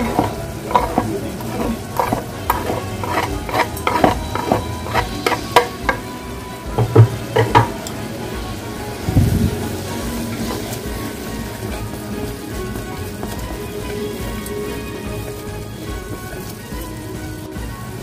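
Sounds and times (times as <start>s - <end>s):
utensil scraping cutting board: 0.0s - 6.1s
sauce sizzling in a pot: 0.0s - 18.0s.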